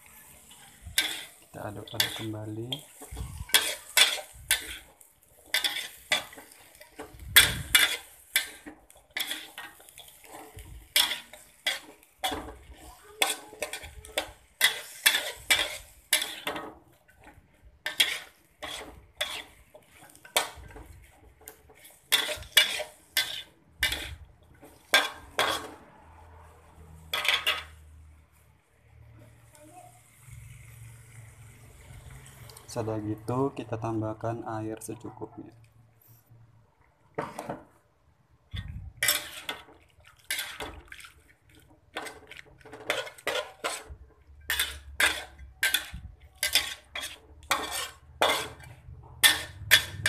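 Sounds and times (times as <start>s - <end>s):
utensil scraping a pan: 0.0s - 28.0s, 38.5s - 50.0s.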